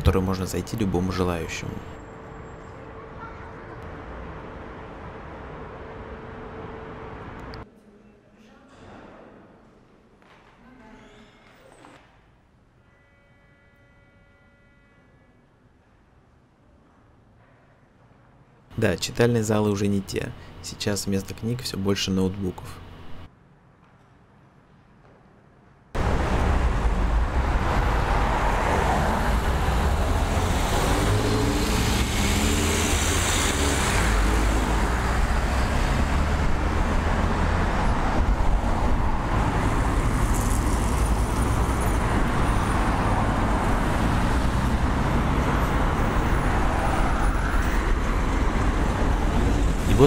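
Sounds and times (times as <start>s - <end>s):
passing cars and engines: 26.0s - 50.0s.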